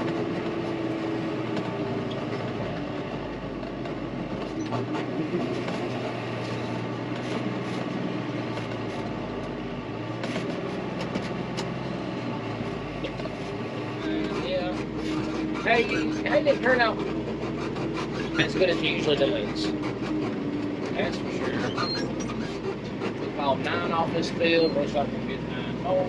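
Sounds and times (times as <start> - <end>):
tractor engine running: 0.0 - 26.0.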